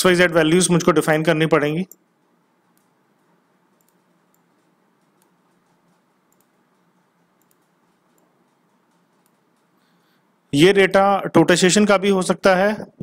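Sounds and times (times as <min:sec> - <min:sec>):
computer mouse clicks: 0:01.9 - 0:10.0.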